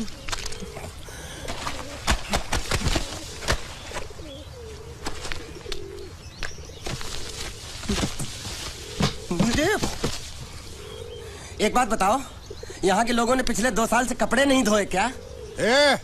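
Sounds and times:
low wavering cooing calls: 0:00.0 - 0:11.6, 0:14.7 - 0:16.0.

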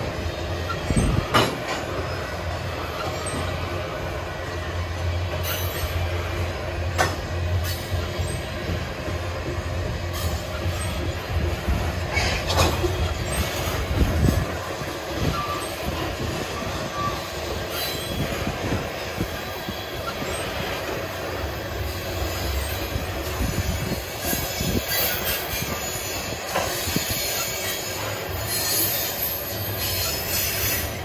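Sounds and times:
freight cars knocking and clanking: 0:00.0 - 0:04.0, 0:06.8 - 0:21.4
train wheels rumbling on rail: 0:00.0 - 0:31.0
faint wheel squeal: 0:00.3 - 0:06.2, 0:12.0 - 0:31.0.

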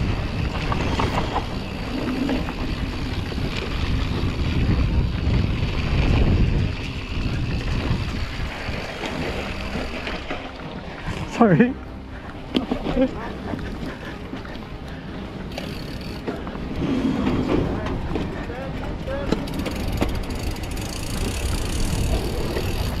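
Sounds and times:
wind rushing over microphone: 0:00.0 - 0:10.0, 0:19.9 - 0:23.0
bike tyres rumbling over dirt: 0:00.0 - 0:11.4, 0:15.5 - 0:23.0.

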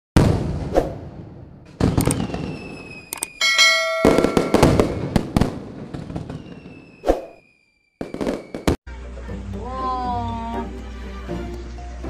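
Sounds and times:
firework cracks and bangs: 0:00.2 - 0:03.1, 0:04.0 - 0:07.0, 0:08.0 - 0:08.8
falling firework whistles: 0:01.8 - 0:03.5, 0:04.1 - 0:08.8
bell chime ringing: 0:03.4 - 0:04.9.

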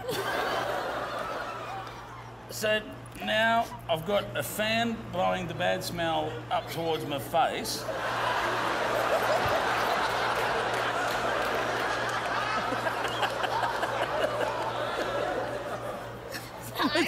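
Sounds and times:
audience laughing: 0:00.0 - 0:02.5, 0:07.8 - 0:17.0.

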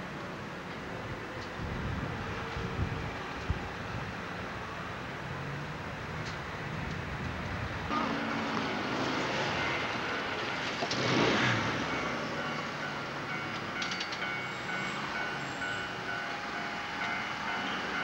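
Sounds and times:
road vehicle passing: 0:07.6 - 0:13.2.

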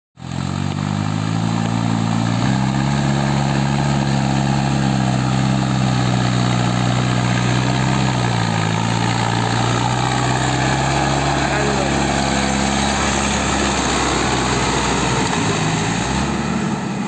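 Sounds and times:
tractor diesel engine droning: 0:00.2 - 0:17.0.

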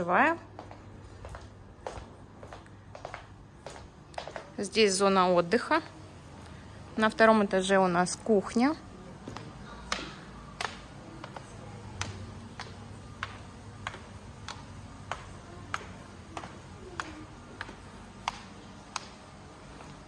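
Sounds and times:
footsteps on tiled floor: 0:00.0 - 0:20.0.

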